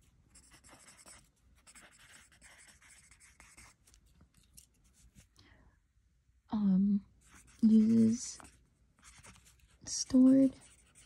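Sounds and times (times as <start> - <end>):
pen scratching on paper: 0.0 - 4.0, 7.2 - 11.0.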